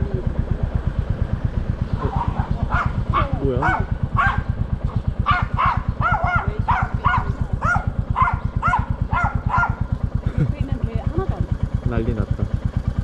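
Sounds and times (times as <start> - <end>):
motorcycle engine thumping: 0.0 - 13.0
dog barking: 2.0 - 4.5, 5.2 - 9.9.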